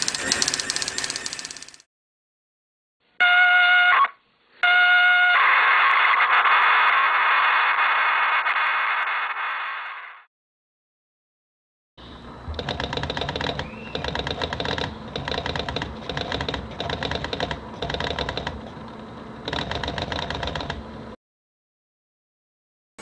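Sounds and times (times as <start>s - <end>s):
thermal printer fast ticking: 0.0s - 1.8s, 12.6s - 18.6s.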